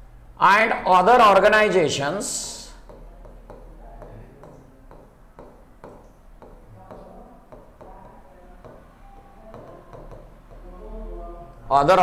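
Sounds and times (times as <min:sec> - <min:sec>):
low electrical hum: 0:00.0 - 0:12.0
stylus tapping on glass: 0:02.8 - 0:10.7.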